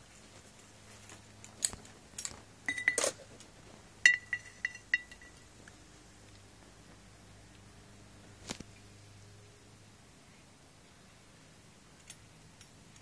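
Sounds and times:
cables knocking against glass jar: 1.6 - 3.2, 4.0 - 5.5.

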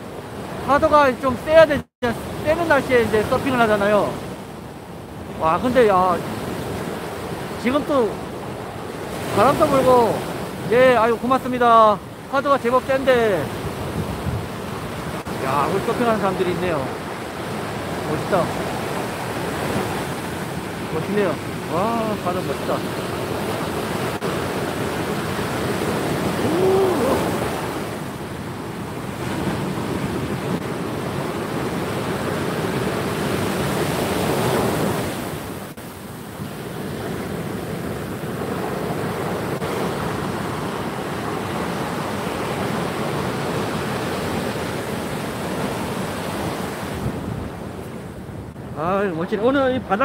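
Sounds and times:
surf breaking on beach: 5.2 - 48.8
wind on microphone: 13.5 - 15.5, 22.9 - 28.2, 29.2 - 48.7.

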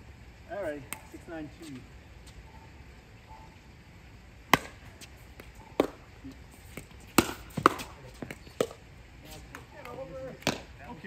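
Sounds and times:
paddles hitting plastic ball: 6.7 - 8.8, 9.5 - 10.7.

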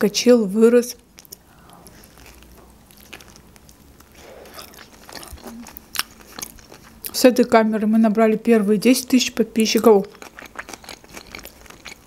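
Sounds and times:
close chewing of soft food: 1.0 - 7.4, 9.5 - 12.0.

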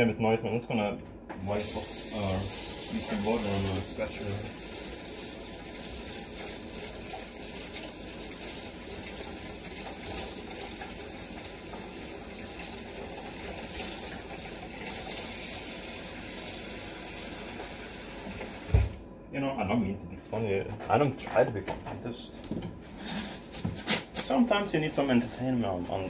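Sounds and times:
tap running into a sink: 17.2 - 19.0.

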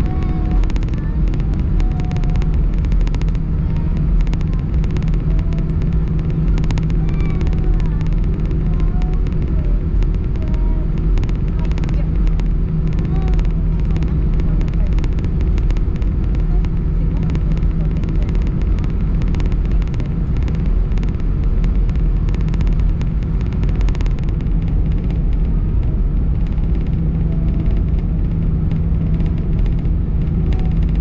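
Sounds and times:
faint clicks and rattles: 0.0 - 31.0
jet engines idling in cabin: 0.0 - 31.0.

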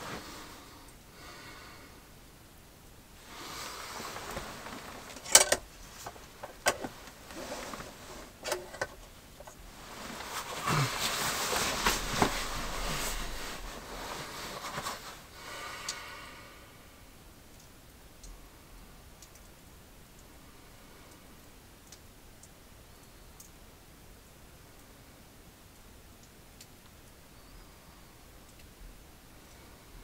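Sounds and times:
faint hiss: 0.0 - 30.0
sleeping bag and clothing rustling: 3.2 - 15.3
light ticks: 15.8 - 16.1, 17.4 - 20.4, 21.1 - 23.6, 25.7 - 27.6, 28.4 - 29.7.

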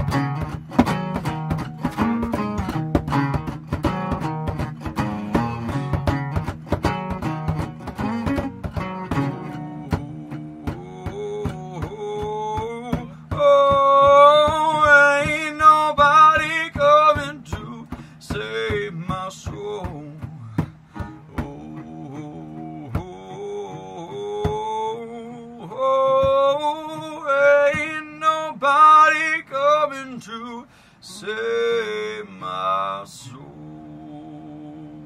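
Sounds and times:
low steady beat: 0.0 - 24.9
strummed guitars: 0.0 - 35.0
man singing: 3.4 - 35.0.

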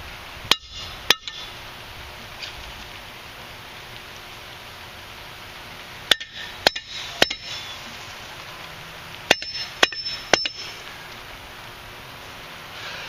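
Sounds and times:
metal striking steel ringing: 0.5 - 1.5, 6.1 - 7.7, 9.3 - 10.8.

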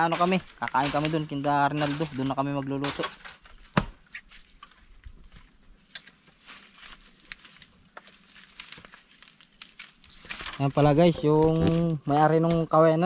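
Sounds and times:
dry leaves and twigs crackling underfoot: 0.0 - 13.0
twig snapping: 5.8 - 6.3, 7.2 - 10.7.

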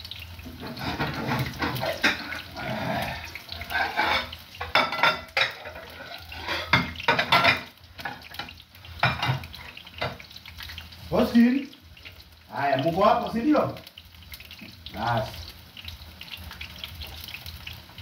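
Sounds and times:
water running: 0.0 - 18.0
dishes and utensils clattering: 0.4 - 2.6, 3.6 - 10.3.

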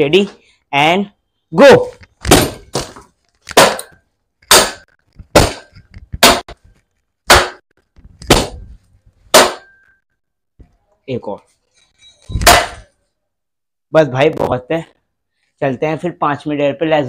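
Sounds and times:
wooden plank striking metal frame: 2.2 - 10.0, 12.4 - 12.9.

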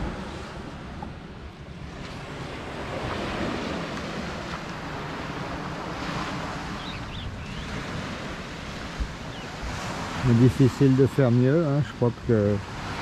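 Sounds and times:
small waves washing onto beach: 0.0 - 13.0
wind rumbling on microphone: 0.0 - 13.0
faint high bird chirps: 6.8 - 7.8.

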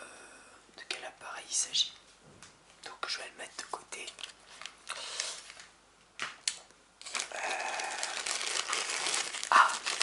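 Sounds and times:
crinkling rustle of rummaging: 7.0 - 10.0.

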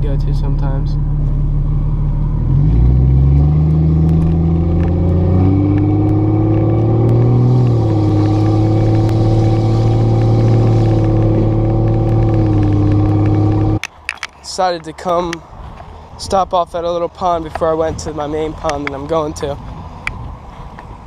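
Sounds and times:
car engine accelerating: 0.0 - 13.8
road noise inside car: 0.0 - 16.3.

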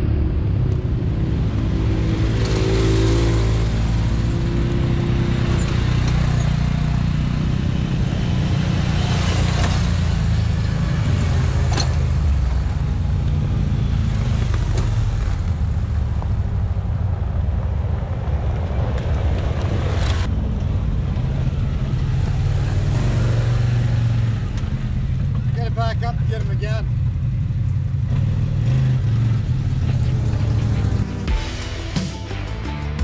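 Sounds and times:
engines running: 0.0 - 33.0.

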